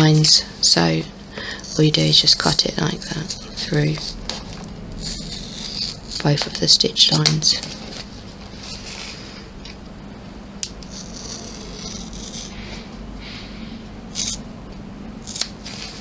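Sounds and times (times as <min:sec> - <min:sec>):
scissors cutting fabric and vinyl: 0:02.2 - 0:07.5, 0:10.8 - 0:12.5, 0:15.2 - 0:16.0.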